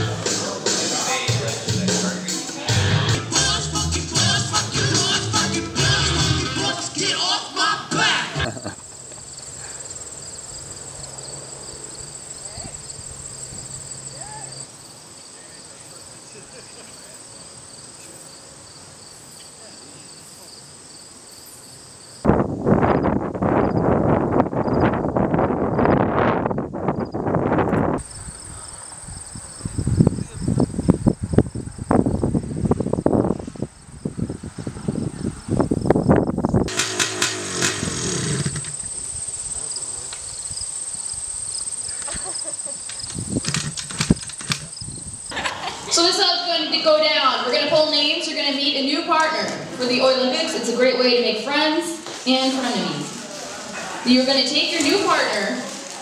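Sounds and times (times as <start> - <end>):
voices: 0.0 - 9.9, 12.3 - 18.3, 19.3 - 20.7, 38.8 - 40.4, 41.6 - 43.2, 45.3 - 56.0
insects trilling: 6.6 - 46.7.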